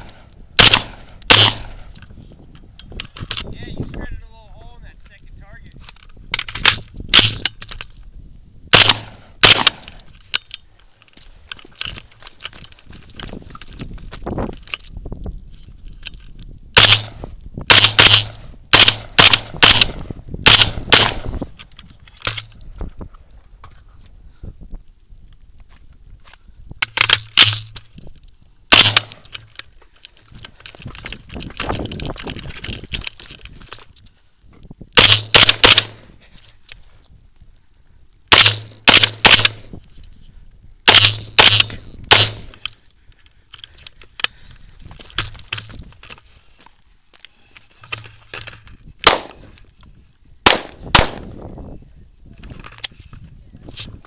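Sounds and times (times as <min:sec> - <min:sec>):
rifle shots: 0:00.0 - 0:01.9, 0:06.6 - 0:07.5, 0:08.7 - 0:10.0, 0:16.8 - 0:21.5, 0:28.7 - 0:29.3, 0:35.0 - 0:36.1, 0:38.3 - 0:39.7, 0:40.9 - 0:42.6, 0:49.0 - 0:49.5, 0:50.4 - 0:51.3
sharp gunshots: 0:00.0 - 0:01.9, 0:06.6 - 0:07.5, 0:08.7 - 0:10.0, 0:16.8 - 0:21.5, 0:28.7 - 0:29.3, 0:35.0 - 0:36.0, 0:38.3 - 0:39.7, 0:40.9 - 0:42.6, 0:49.0 - 0:49.5, 0:50.4 - 0:51.3
small clacks and rattles: 0:28.9 - 0:34.2.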